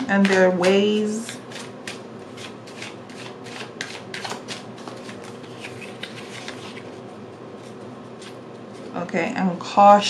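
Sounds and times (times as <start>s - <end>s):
cards being shuffled: 1.3s - 7.0s.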